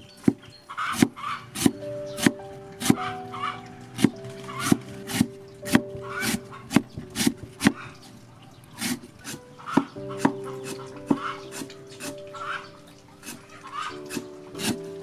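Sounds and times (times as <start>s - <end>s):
soft background music: 0.0s - 15.0s
cleaver chopping on wooden block: 0.2s - 3.0s, 14.1s - 14.8s.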